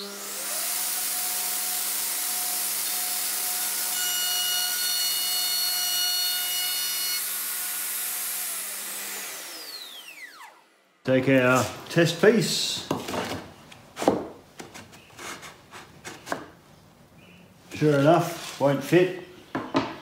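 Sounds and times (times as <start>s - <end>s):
router cutting plywood: 0.0s - 10.8s
router whining: 0.0s - 11.0s.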